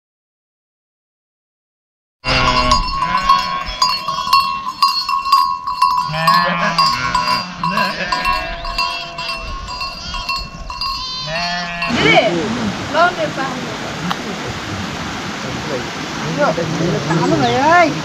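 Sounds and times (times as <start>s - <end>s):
animals bleating: 2.2s - 4.9s, 5.9s - 12.4s
livestock bells ringing: 2.2s - 12.3s.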